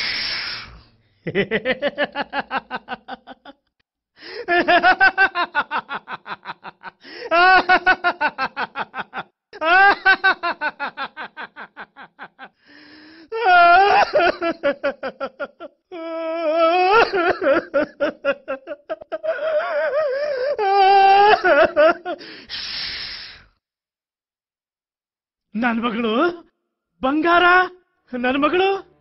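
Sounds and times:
man shushing: 0:00.0 - 0:01.0
man laughing wildly: 0:01.3 - 0:03.6, 0:04.3 - 0:12.6, 0:13.3 - 0:22.2.

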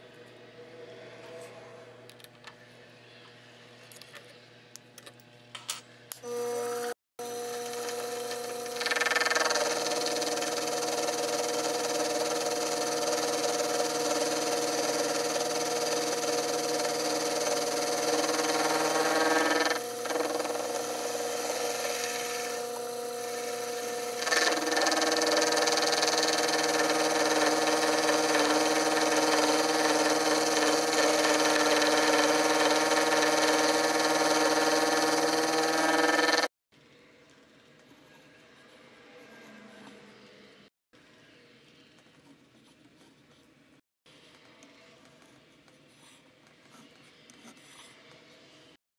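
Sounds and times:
cutter milling steel: 0:06.2 - 0:36.5
mill motor and spindle whine: 0:06.2 - 0:36.5.

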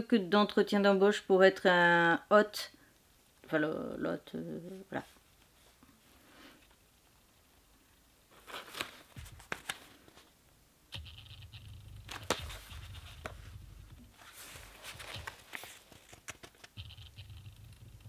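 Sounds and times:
pages opening: 0:08.3 - 0:10.3, 0:11.0 - 0:18.0
book handling knocks and rustles: 0:08.4 - 0:10.3, 0:12.0 - 0:16.8
low hum: 0:10.9 - 0:14.8, 0:16.8 - 0:18.0.

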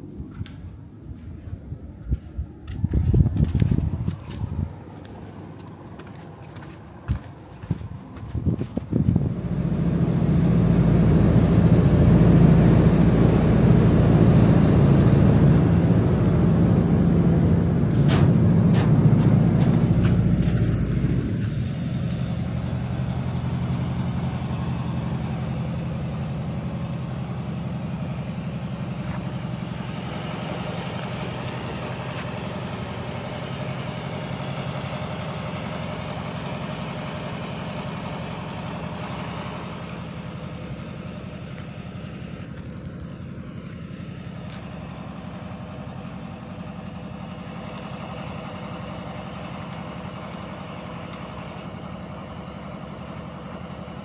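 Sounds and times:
motor droning steadily: 0:09.0 - 0:54.0.

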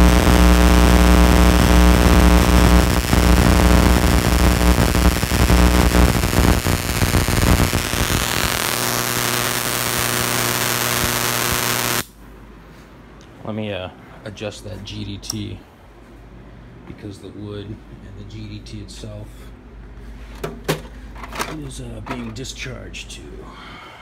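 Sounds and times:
electrical crackles: 0:00.0 - 0:12.1
loud electrical hum: 0:00.0 - 0:24.0
hiss of electrical discharge: 0:04.7 - 0:12.1.

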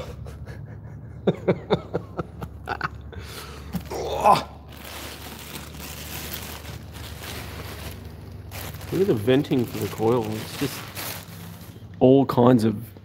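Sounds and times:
person grunting: 0:03.7 - 0:04.7
plastic wrapping crinkling: 0:03.7 - 0:12.0.

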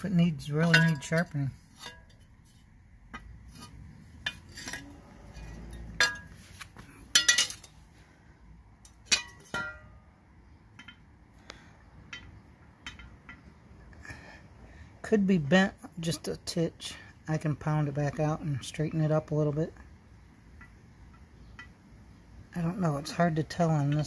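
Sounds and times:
metal blade clinking and knocking: 0:00.6 - 0:02.3, 0:04.2 - 0:06.4, 0:07.1 - 0:07.8.

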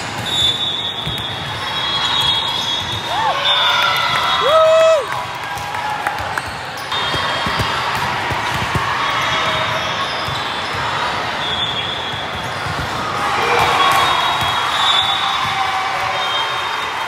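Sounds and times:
volleyballs bouncing and being hit: 0:00.0 - 0:04.3, 0:05.2 - 0:16.3
many voices in a hall: 0:00.0 - 0:17.0.

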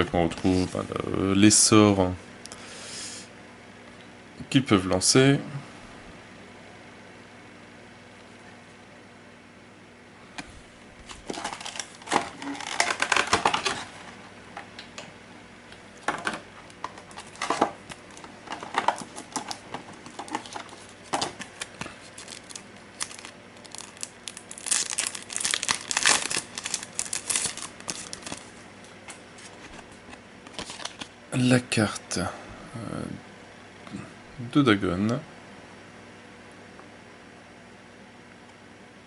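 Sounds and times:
plastic packaging crinkling: 0:11.0 - 0:14.1, 0:16.0 - 0:31.2.

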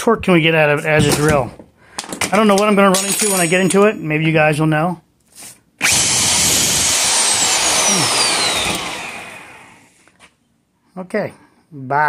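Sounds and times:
reciprocating saw motor whining: 0:05.8 - 0:10.0.

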